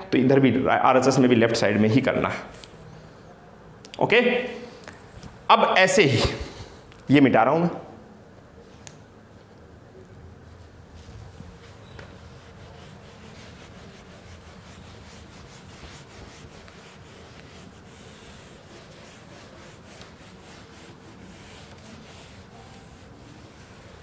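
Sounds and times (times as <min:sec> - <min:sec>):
eraser rubbing on whiteboard: 0:11.0 - 0:24.0.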